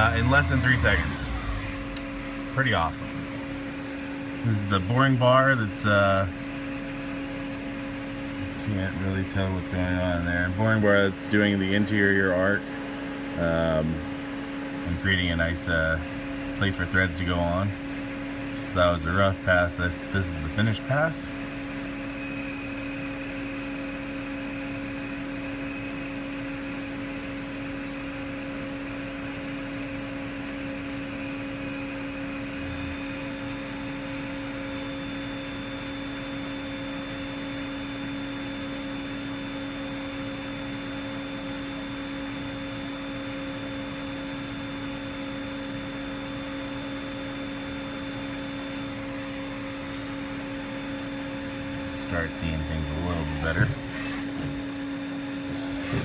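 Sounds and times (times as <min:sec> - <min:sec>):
high whining tones: 0:00.0 - 0:04.4
lathe machine hum: 0:00.0 - 0:09.6, 0:29.4 - 0:39.7, 0:47.5 - 0:56.0.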